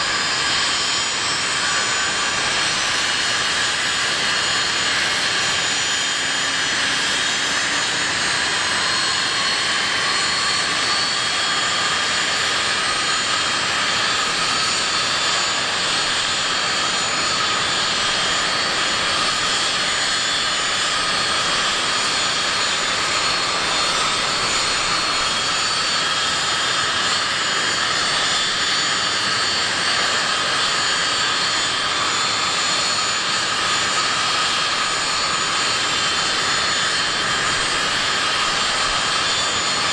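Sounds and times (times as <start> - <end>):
jet turbines idling: 0.1 - 39.9.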